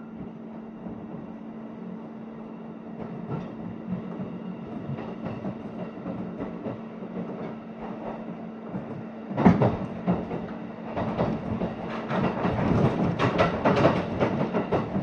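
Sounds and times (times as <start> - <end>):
train hum and rumble: 0.0 - 15.0
train wheels knocking over rail joints: 9.3 - 15.0.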